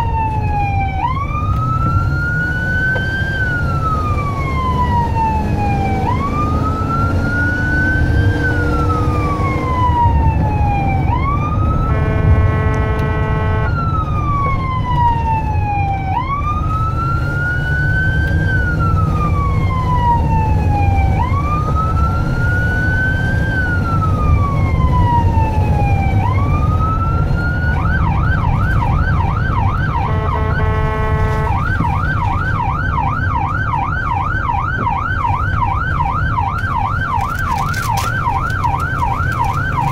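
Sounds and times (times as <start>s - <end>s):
electronic siren wailing and yelping: 0.0s - 39.9s
engine and road rumble: 0.0s - 39.9s
horn blast: 11.8s - 13.8s, 30.0s - 31.6s.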